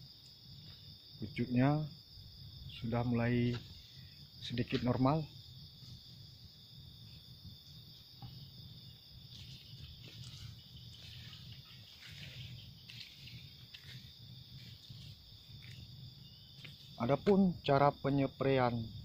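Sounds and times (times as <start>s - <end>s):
crickets trilling: 0.0s - 19.0s
plants rustling: 9.0s - 17.7s.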